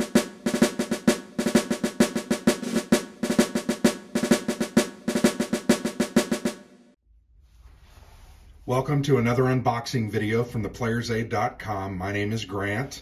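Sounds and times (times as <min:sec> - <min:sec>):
snare drum rolls: 0:00.0 - 0:07.0.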